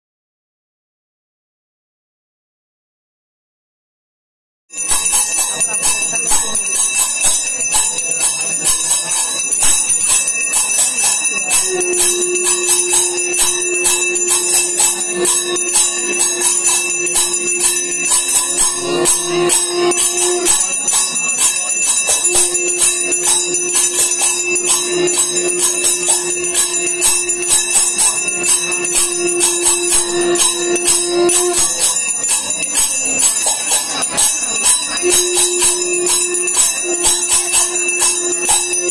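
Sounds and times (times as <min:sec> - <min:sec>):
bells ringing rapidly: 0:04.8 - 0:38.9
steady low note: 0:11.5 - 0:32.0.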